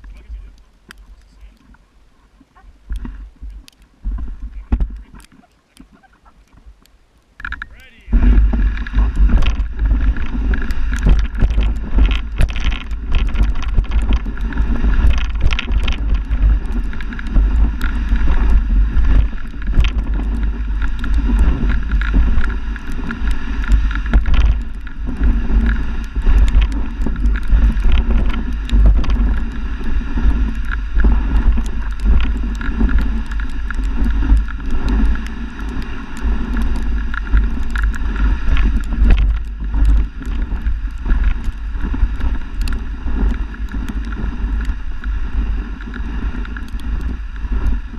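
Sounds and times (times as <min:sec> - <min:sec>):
sled runners rumbling on snow: 0:00.0 - 0:47.9
wind on microphone: 0:00.0 - 0:47.9
small knocks and rattles: 0:08.3 - 0:29.6, 0:30.2 - 0:44.8.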